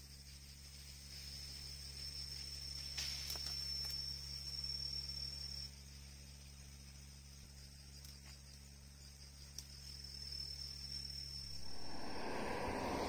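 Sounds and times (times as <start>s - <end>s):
insect high-pitched whine: 0.0s - 13.0s.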